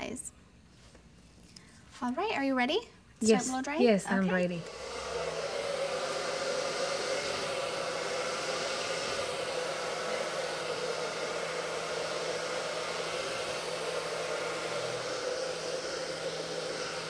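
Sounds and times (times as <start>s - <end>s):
hair dryer running: 3.7s - 17.0s.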